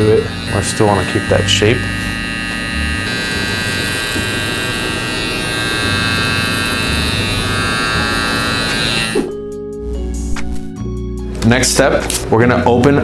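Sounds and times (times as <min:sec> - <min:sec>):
hair clipper buzzing: 0:00.0 - 0:09.5.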